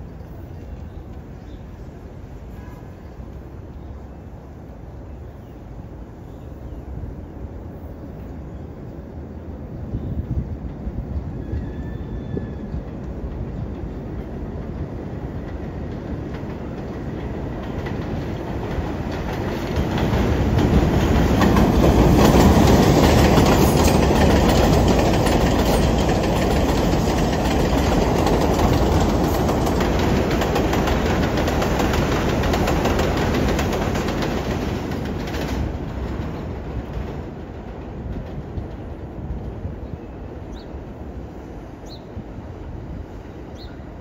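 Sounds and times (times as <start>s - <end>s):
train wheels rumbling and clacking: 9.6s - 44.0s.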